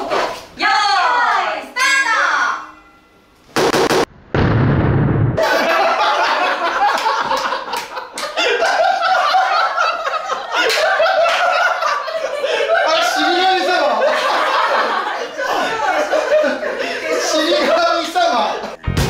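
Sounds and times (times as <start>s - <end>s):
loud bang: 3.6s - 5.5s
people laughing: 5.4s - 18.8s
people talking: 12.7s - 14.2s, 17.0s - 18.8s.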